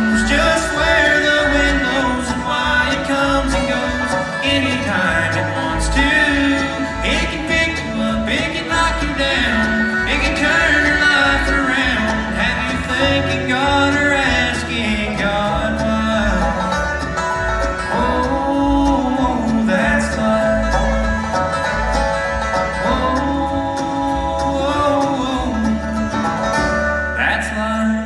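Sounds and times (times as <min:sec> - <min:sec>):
acoustic guitar: 0:00.0 - 0:28.0
banjo: 0:00.0 - 0:28.0
fiddle: 0:00.0 - 0:28.0
mandolin: 0:00.0 - 0:28.0
upright bass: 0:00.0 - 0:28.0.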